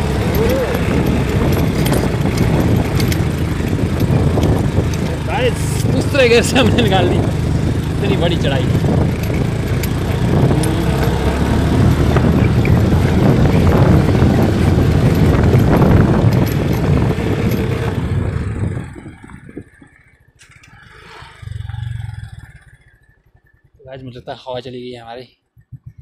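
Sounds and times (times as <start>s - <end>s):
stones clattering under tyres: 0.0s - 20.7s
motorcycle engine running: 0.0s - 26.0s.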